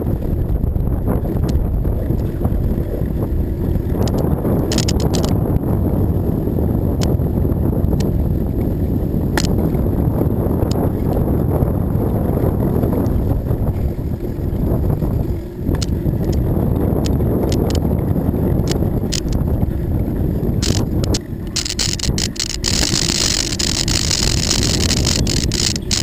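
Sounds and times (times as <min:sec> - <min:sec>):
wind rumble on microphone: 0:00.0 - 0:26.0
clicks and rattles: 0:04.0 - 0:05.4, 0:17.0 - 0:17.8, 0:18.7 - 0:19.4, 0:20.6 - 0:26.0
tyres rolling on wooden boards: 0:20.6 - 0:26.0.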